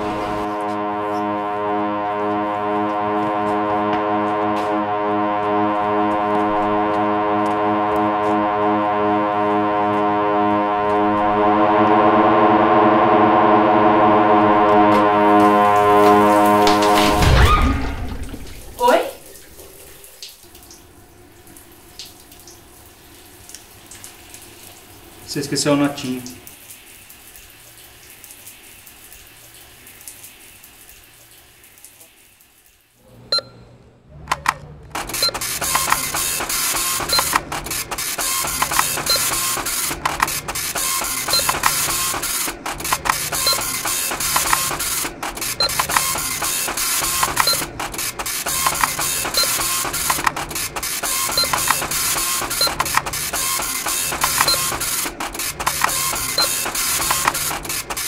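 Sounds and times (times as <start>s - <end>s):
receipt printer rattling: 34.3s - 58.0s.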